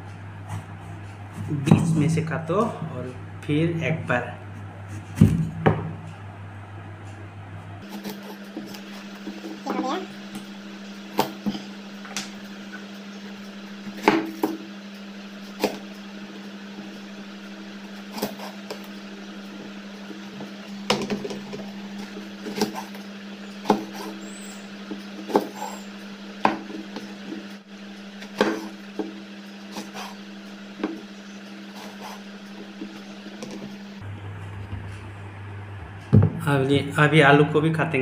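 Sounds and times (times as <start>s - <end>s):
steady low hum: 0.0s - 38.0s
knife chopping on wooden board: 14.0s - 14.6s, 18.1s - 18.9s, 20.8s - 23.0s, 23.6s - 24.2s, 25.2s - 25.8s, 28.2s - 30.2s.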